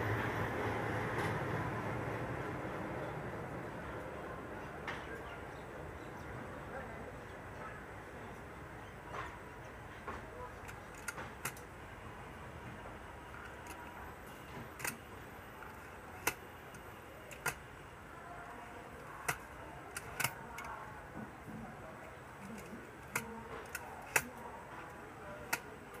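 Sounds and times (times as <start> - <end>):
low train rolling noise: 0.0 - 26.0
train wheels clicking over rail joints: 10.0 - 17.9, 18.8 - 26.0.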